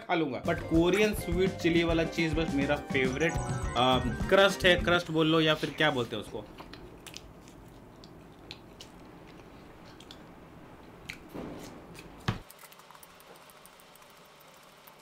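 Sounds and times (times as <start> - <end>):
man chewing food: 6.5 - 14.4.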